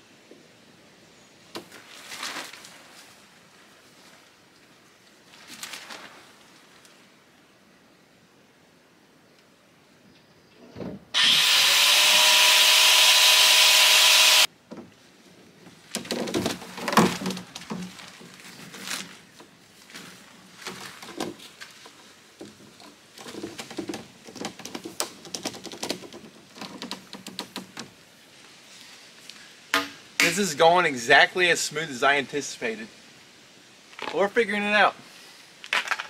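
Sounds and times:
tarp rustling: 0:01.6 - 0:07.1, 0:15.7 - 0:27.1.

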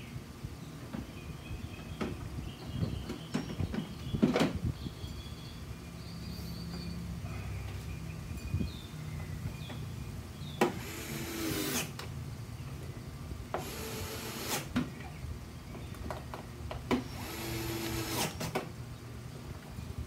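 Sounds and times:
electric screwdriver whirring: 0:17.0 - 0:18.5.

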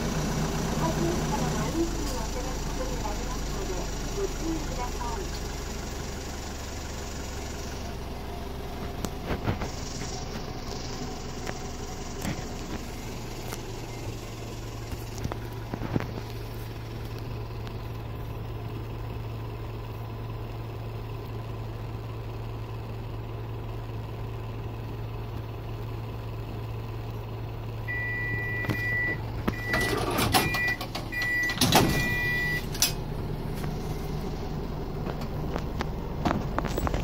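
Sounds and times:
diesel engine idling: 0:00.0 - 0:37.0
high electronic warning beeps: 0:27.9 - 0:32.7
door closing clunks and rattles: 0:28.6 - 0:33.1.

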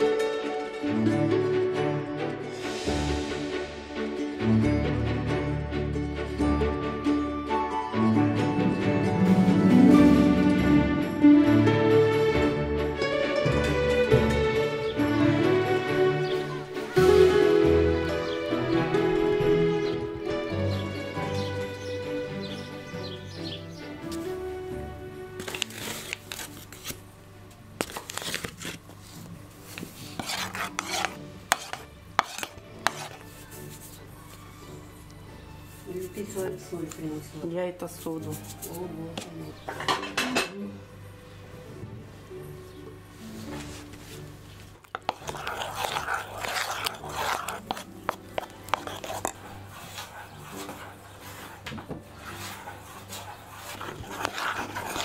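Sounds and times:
paper bag rustling: 0:25.4 - 0:27.0, 0:27.8 - 0:30.2
spoon scraping in bowl: 0:29.7 - 0:34.0, 0:44.8 - 0:55.0.

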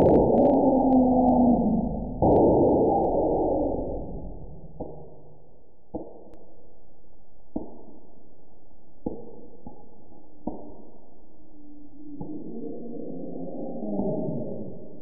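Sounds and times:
low drone: 0:00.0 - 0:05.7, 0:10.1 - 0:15.0.

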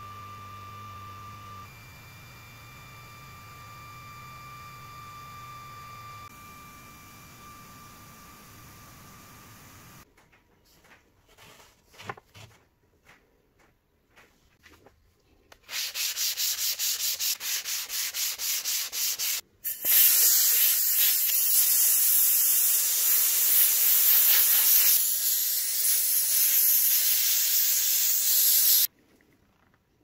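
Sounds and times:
sanding sponge rubbing on board: 0:15.7 - 0:19.4
compressed air blow gun hissing: 0:19.2 - 0:28.9.

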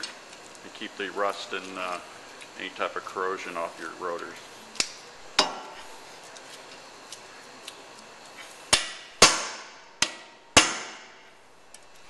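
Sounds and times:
hammer striking impact driver: 0:08.7 - 0:11.2.

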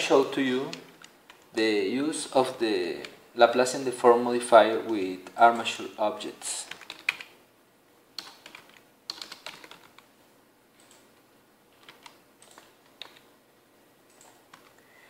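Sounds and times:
faint keyboard typing: 0:00.0 - 0:01.6, 0:02.9 - 0:03.7, 0:04.8 - 0:07.4, 0:08.1 - 0:10.1, 0:10.7 - 0:13.3, 0:14.0 - 0:15.0.

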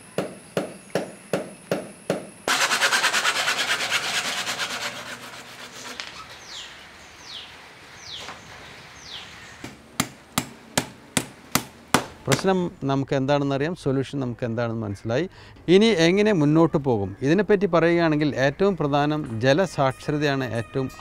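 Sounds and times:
loud fast rasping: 0:02.5 - 0:06.6.

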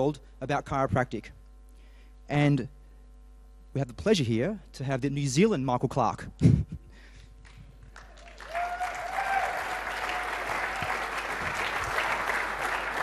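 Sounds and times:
audience applauding: 0:07.9 - 0:13.0
crowd whoop: 0:08.1 - 0:13.0.

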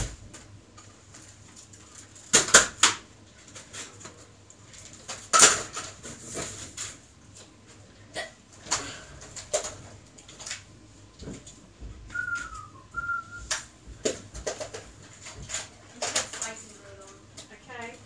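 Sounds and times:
objects clacking and knocking: 0:02.0 - 0:07.0, 0:08.6 - 0:17.6.

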